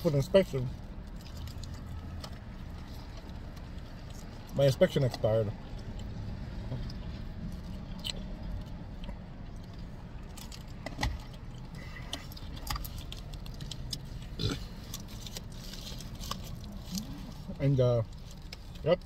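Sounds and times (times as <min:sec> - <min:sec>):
low hum in car cabin: 0:00.0 - 0:19.0.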